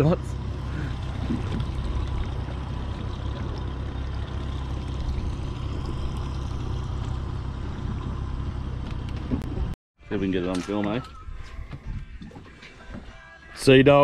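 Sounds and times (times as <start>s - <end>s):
steady low rumble: 0.0s - 9.8s
water sloshing against boat hull: 0.4s - 9.8s.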